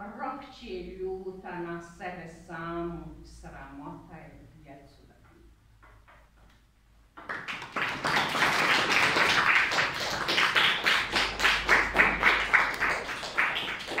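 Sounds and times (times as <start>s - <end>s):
children applauding: 7.2s - 14.0s.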